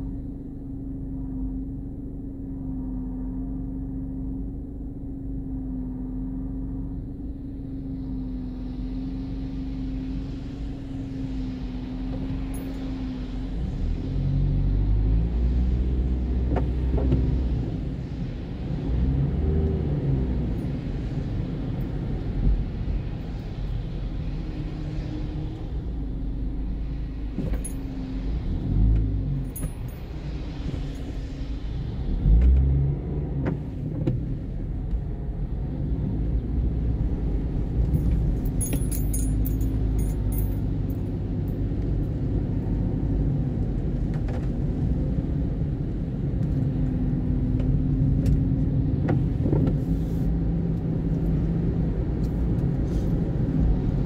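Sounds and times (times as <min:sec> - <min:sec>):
car engine and tyre rumble: 0:00.0 - 0:54.0
light jingling: 0:38.5 - 0:40.6.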